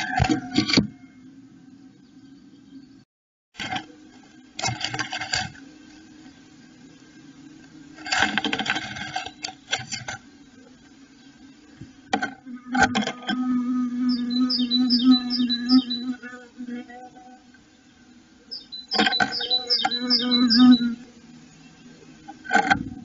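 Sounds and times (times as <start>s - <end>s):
low steady hum: 3.6s - 23.0s
bird scratching in nest: 4.6s - 6.0s, 8.0s - 10.2s.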